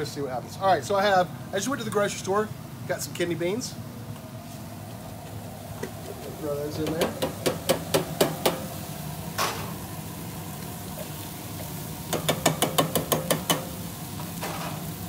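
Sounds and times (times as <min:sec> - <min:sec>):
can tapping on steel pan rim: 0:12.1 - 0:13.7.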